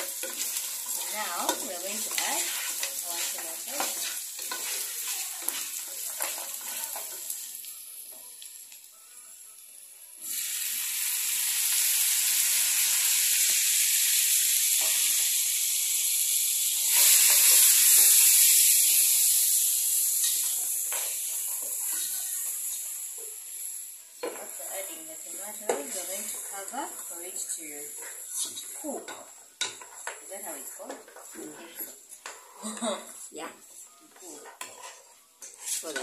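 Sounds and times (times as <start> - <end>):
wooden spoon stirring: 0.0 - 7.3, 34.2 - 36.0
beef and onions sizzling in pan: 0.0 - 36.0.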